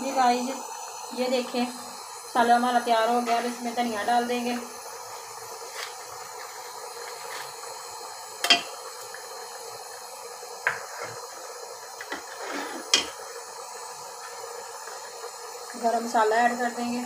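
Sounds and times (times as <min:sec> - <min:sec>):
metal ladle knocking on pot: 0:08.4 - 0:08.7.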